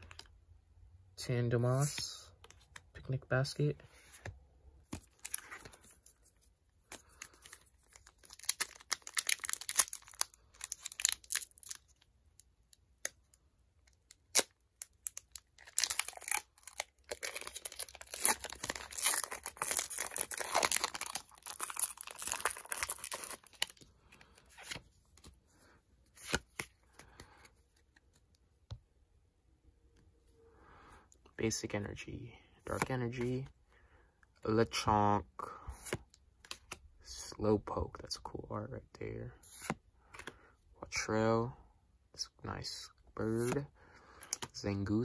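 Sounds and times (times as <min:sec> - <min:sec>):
foil wrapper tearing and crinkling: 0:08.0 - 0:11.8, 0:14.3 - 0:23.8.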